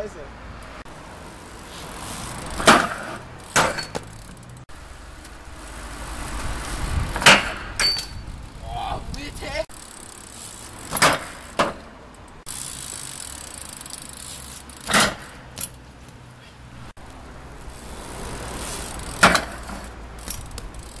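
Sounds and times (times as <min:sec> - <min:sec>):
tyres rolling on asphalt: 0:00.0 - 0:21.0
bike wheels knocking on ledge: 0:02.5 - 0:04.4, 0:10.9 - 0:11.9, 0:19.1 - 0:19.9.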